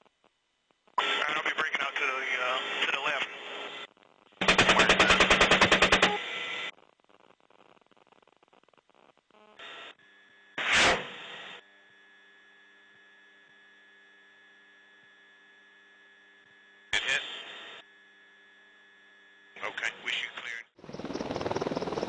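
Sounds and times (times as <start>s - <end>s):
bursts of noise: 4.4s - 6.3s.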